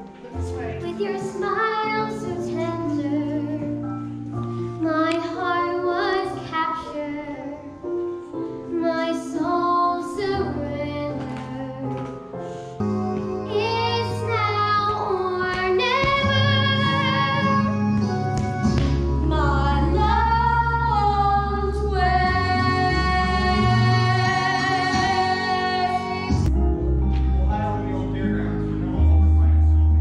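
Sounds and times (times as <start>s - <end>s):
instrumental accompaniment: 0.0s - 30.0s
girl singing: 0.4s - 3.8s, 4.8s - 7.8s, 8.7s - 12.1s, 12.8s - 18.2s, 19.2s - 26.5s.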